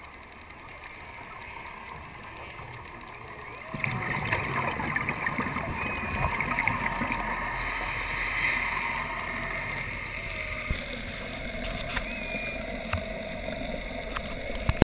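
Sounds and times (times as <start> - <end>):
diver's regulator bubbles: 0.0 - 14.8
underwater rush of water: 0.0 - 14.8
faint short gliding tones: 0.6 - 14.6.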